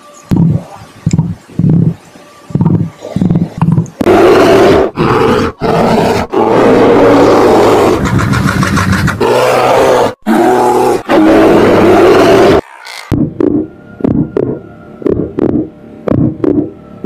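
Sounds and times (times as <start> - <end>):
bear roaring: 3.0 - 12.6.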